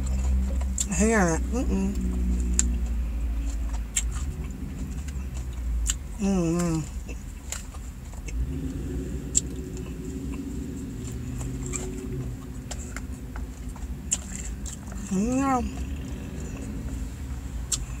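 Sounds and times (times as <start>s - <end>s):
low car cabin rumble: 0.0s - 18.0s
person humming: 15.1s - 15.8s.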